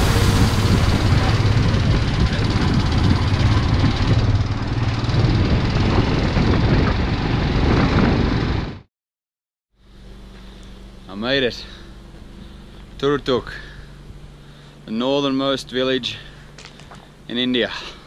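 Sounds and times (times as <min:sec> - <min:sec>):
motorcycle engine running: 0:00.0 - 0:08.9
wind and road noise: 0:00.0 - 0:08.9.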